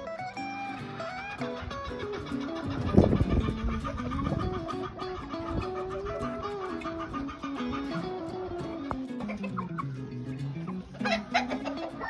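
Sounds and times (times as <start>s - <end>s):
chickens clucking: 0.0s - 12.0s
background music: 6.2s - 12.0s.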